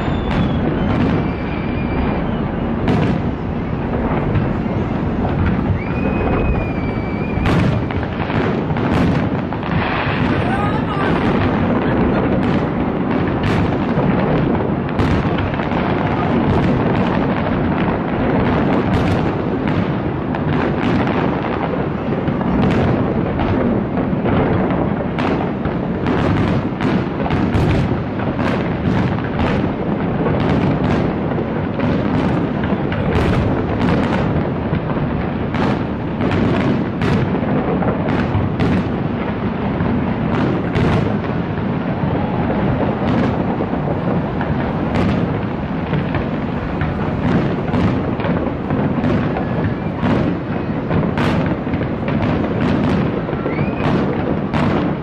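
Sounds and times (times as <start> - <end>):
fireworks cracks and bangs: 0.0 - 55.0
low rumble of booms: 0.0 - 55.0.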